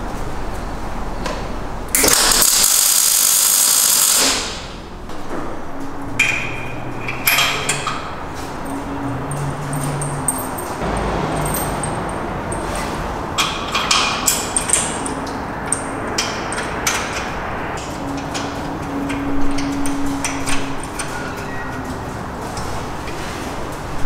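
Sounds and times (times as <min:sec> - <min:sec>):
metallic clinks and knocks: 0:06.2 - 0:17.3.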